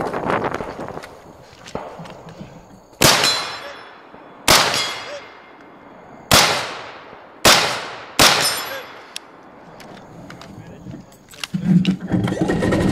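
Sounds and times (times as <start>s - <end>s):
gunshots with ringing tail: 1.8s - 9.6s
steel targets ringing: 3.0s - 5.9s, 8.2s - 9.1s.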